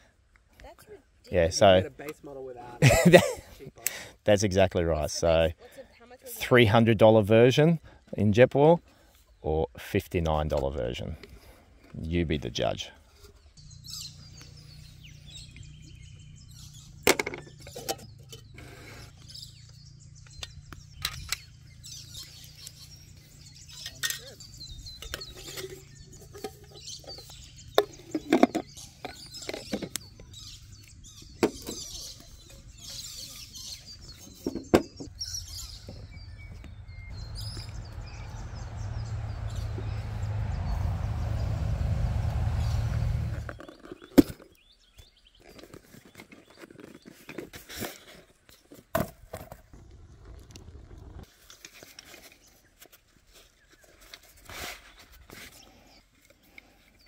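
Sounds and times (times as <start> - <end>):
low rumble: 35.8 - 43.6.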